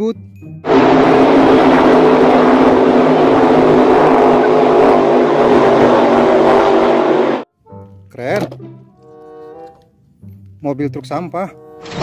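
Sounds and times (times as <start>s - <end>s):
powerboat engine drone: 0.6s - 7.5s
broad rushing noise: 0.7s - 7.5s.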